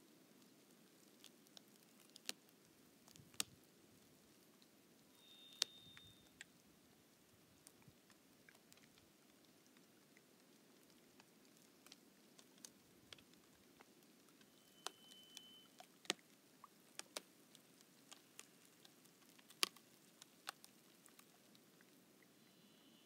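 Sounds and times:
lake ice crackling: 7.6 - 22.3.

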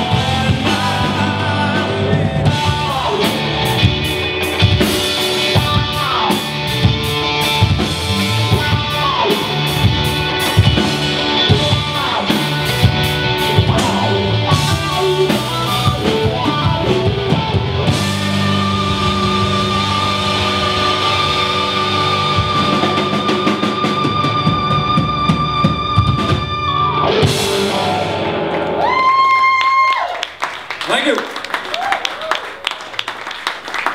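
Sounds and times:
drum beat: 0.0 - 26.6
bass guitar: 0.0 - 30.1
electric guitars: 0.0 - 30.4
guitar slides: 3.0 - 29.0.

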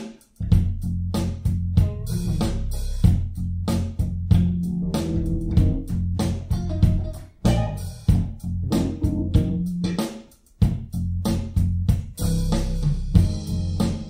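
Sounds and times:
steady beat: 0.0 - 14.0
bass guitar line: 0.4 - 10.0, 10.6 - 14.0
plucked guitar: 4.4 - 10.0.

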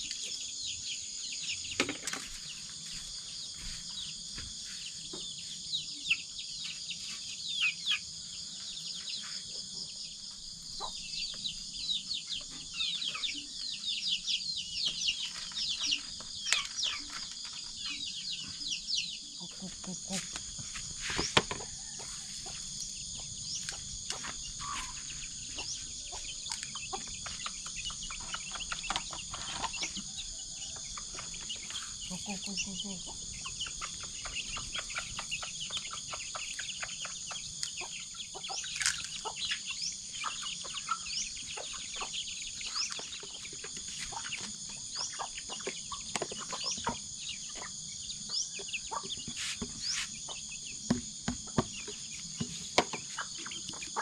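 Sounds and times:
crickets and insects trilling: 0.0 - 54.0
chickens clucking: 14.9 - 54.0.

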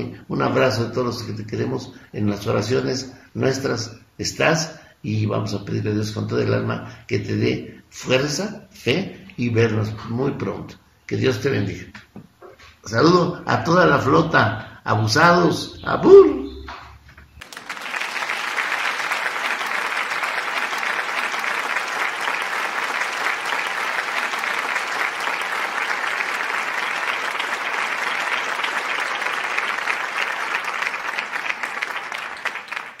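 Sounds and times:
audience applauding: 17.4 - 33.0.

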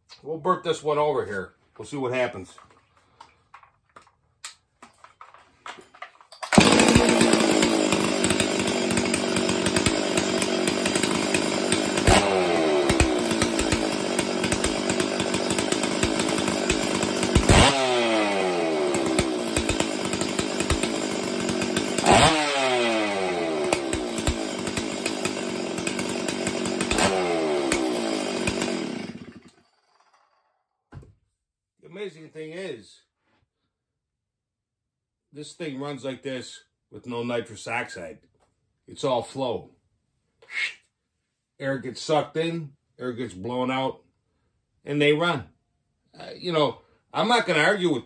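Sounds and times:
chainsaw revving: 6.4 - 29.6.

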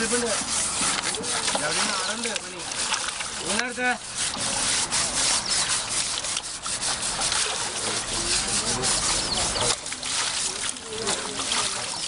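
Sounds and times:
husk rasping on wet skin: 0.0 - 12.0.

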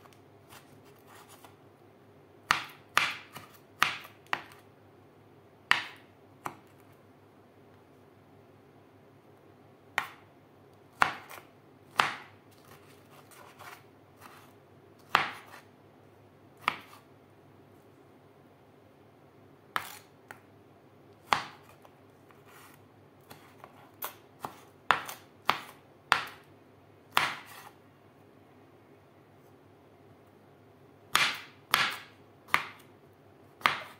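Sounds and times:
knife chopping on wooden board: 2.5 - 4.6, 5.7 - 6.7, 11.0 - 12.7, 15.1 - 15.6, 16.6 - 17.0, 21.3 - 21.7, 23.3 - 26.4, 27.1 - 27.7, 31.1 - 32.8, 33.6 - 33.9.

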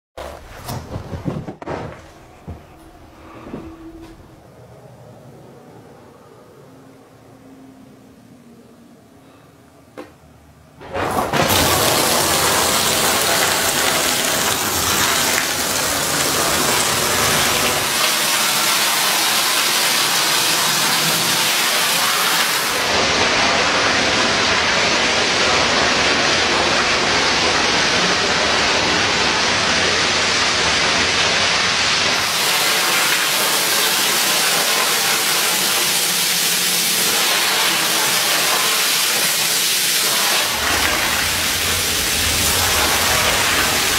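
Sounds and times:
hose water spraying onto rug: 11.4 - 43.9.

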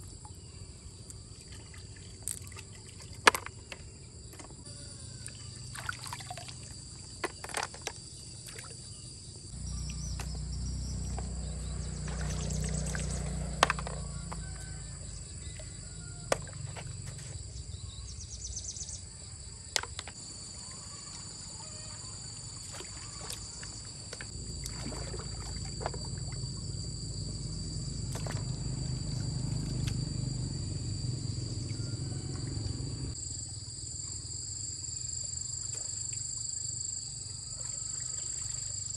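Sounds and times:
insects droning: 0.0 - 38.9
stream water sloshing: 1.0 - 4.6, 5.2 - 17.3, 21.2 - 30.4.

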